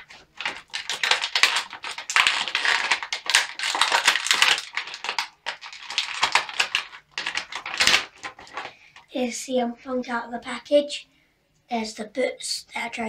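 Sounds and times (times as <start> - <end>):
plastic packaging crinkling: 0.0 - 9.1.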